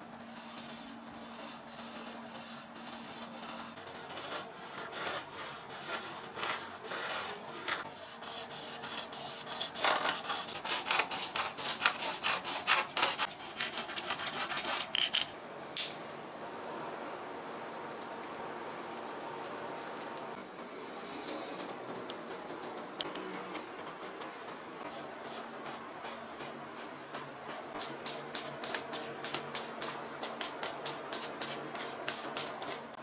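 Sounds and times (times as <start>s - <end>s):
hacksaw sawing plastic pipe: 8.1s - 15.1s.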